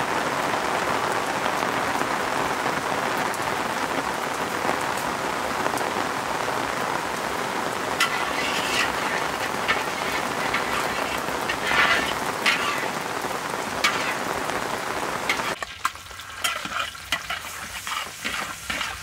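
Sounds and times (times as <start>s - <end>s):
rain falling: 0.0s - 19.0s
metal spatula scraping wok: 8.0s - 13.1s, 13.7s - 14.5s, 15.2s - 19.0s.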